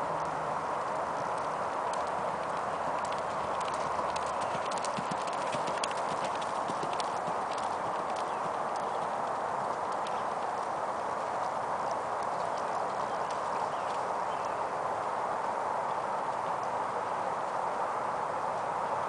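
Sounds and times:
steady hiss: 0:00.0 - 0:19.0
horse hoofbeats on dirt: 0:00.8 - 0:14.6.

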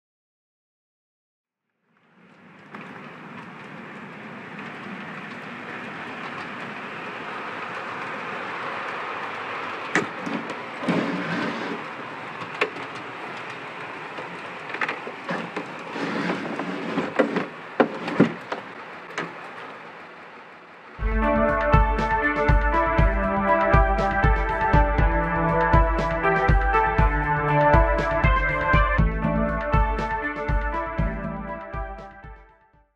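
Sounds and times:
wheels clicking over rail joints: 0:02.1 - 0:21.0
model train rolling hum: 0:02.1 - 0:28.7.

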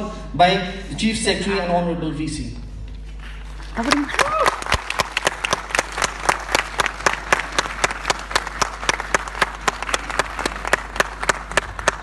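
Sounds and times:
audience applauding: 0:03.6 - 0:12.0
close loud hand clapping: 0:03.6 - 0:12.0.

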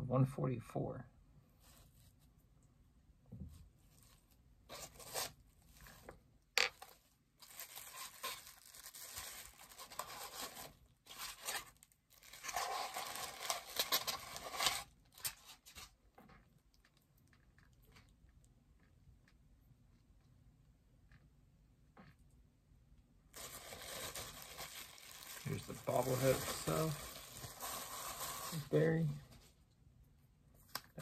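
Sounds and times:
cardboard packaging handling: 0:04.0 - 0:06.0, 0:06.8 - 0:15.9, 0:23.4 - 0:29.5.

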